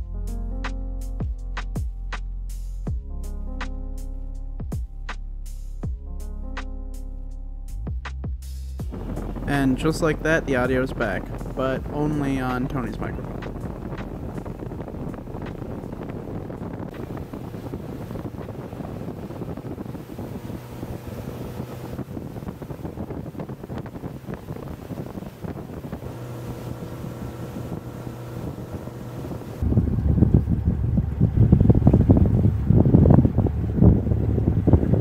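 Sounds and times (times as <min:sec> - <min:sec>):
boat engine running: 0:08.8 - 0:35.0
water rushing past hull: 0:08.9 - 0:35.0
wind buffeting microphone: 0:08.9 - 0:35.0.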